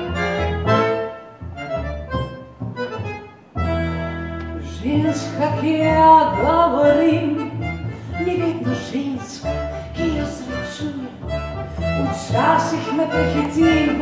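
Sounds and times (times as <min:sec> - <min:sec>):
accordion playing chords: 0:00.0 - 0:14.0
person singing with vibrato: 0:04.8 - 0:14.0.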